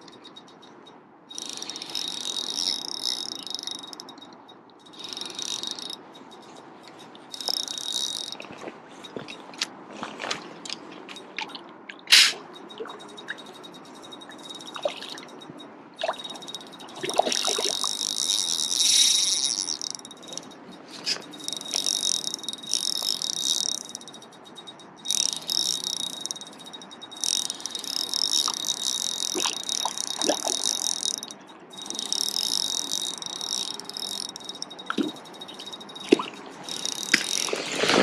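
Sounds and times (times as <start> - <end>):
insects chirping: 0.0 - 9.8, 12.1 - 38.0.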